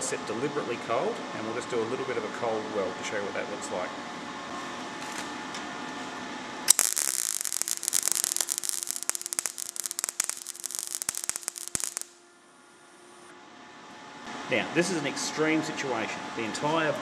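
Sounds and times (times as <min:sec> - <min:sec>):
welding arc crackling and popping: 0:06.7 - 0:12.2.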